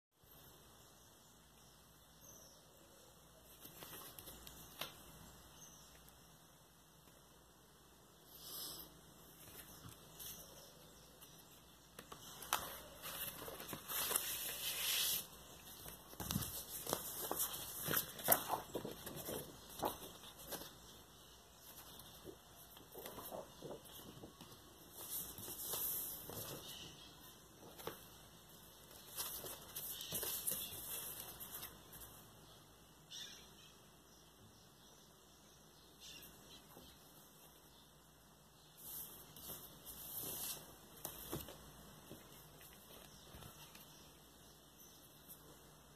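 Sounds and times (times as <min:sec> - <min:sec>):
papery rustling: 0:12.0 - 0:21.0, 0:27.6 - 0:32.2.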